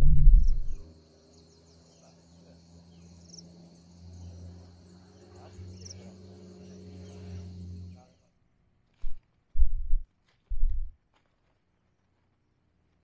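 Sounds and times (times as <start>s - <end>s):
faint low hum: 0.0s - 10.9s
insects chorus: 0.4s - 8.2s.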